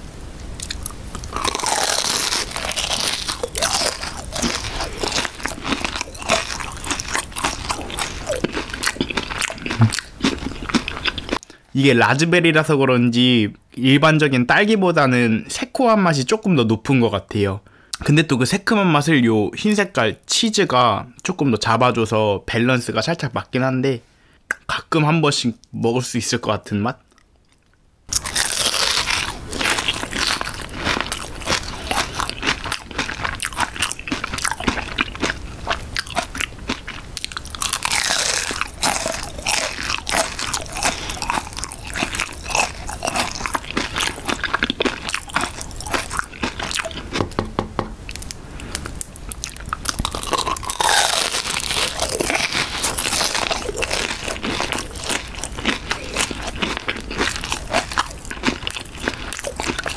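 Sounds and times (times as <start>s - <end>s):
crunching pastry crust: 0.6s - 11.4s, 28.1s - 47.3s, 48.1s - 59.9s
mouth chewing sounds: 0.6s - 11.7s, 27.0s - 47.2s, 48.0s - 59.9s.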